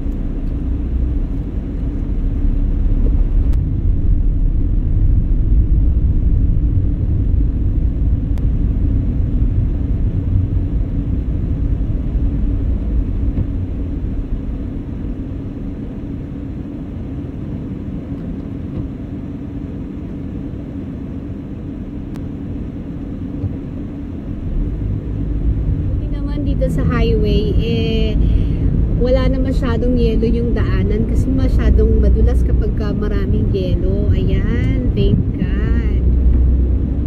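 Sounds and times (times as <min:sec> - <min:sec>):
car road rumble from inside: 0:00.0 - 0:37.0.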